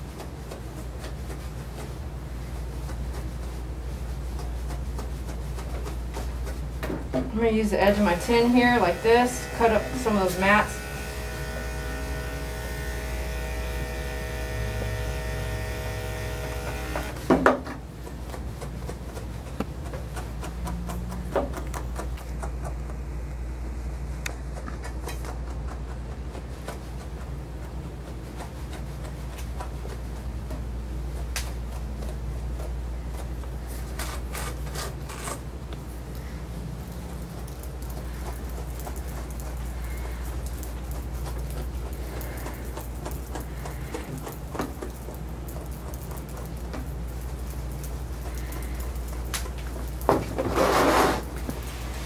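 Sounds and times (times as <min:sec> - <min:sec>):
brush rubbing through fur: 0:00.0 - 0:17.2, 0:17.9 - 0:21.3, 0:23.8 - 0:52.0
steady low hum: 0:00.0 - 0:50.6
electric clippers running: 0:08.0 - 0:17.3.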